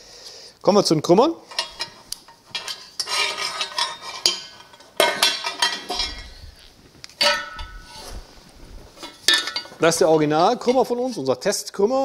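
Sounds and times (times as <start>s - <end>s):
metal pipes clanking on workbench: 1.5s - 6.6s, 7.2s - 8.2s, 9.0s - 11.2s.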